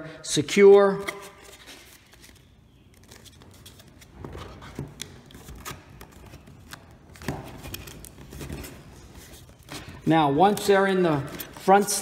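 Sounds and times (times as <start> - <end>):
cardboard rustling and scraping: 3.1 - 10.0.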